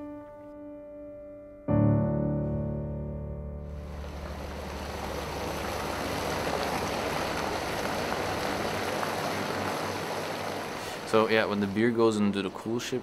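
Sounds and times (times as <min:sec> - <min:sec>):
liquid pouring and splashing: 0:03.8 - 0:12.0.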